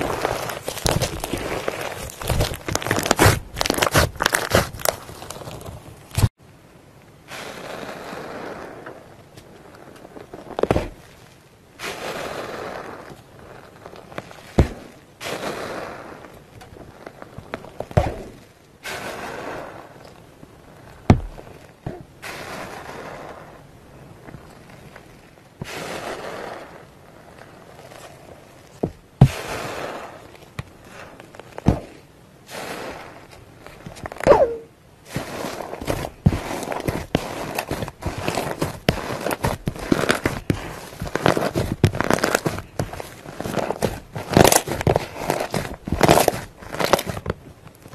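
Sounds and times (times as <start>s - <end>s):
slime bubbles crackling and popping: 0.0s - 6.4s, 35.2s - 47.3s.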